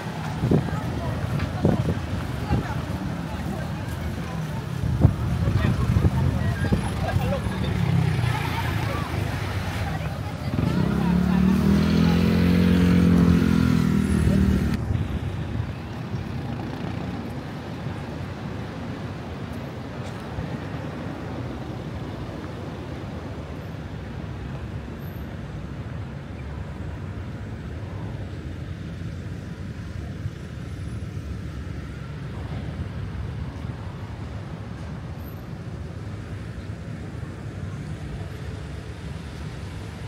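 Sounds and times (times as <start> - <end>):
loud vehicle engine: 0.0 - 17.4
passing traffic rumble: 0.0 - 40.0.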